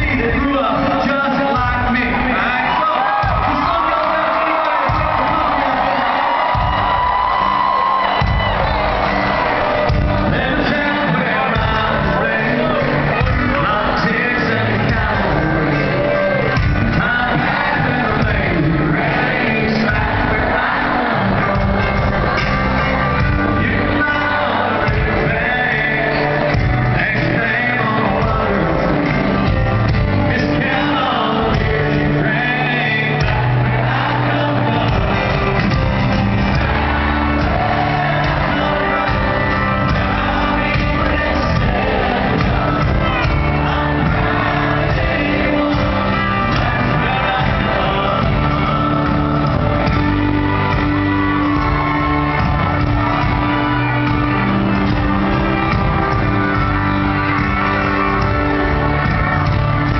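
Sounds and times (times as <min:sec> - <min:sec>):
crowd shouting: 0:00.0 - 0:59.9
live band with singer: 0:00.0 - 0:59.9.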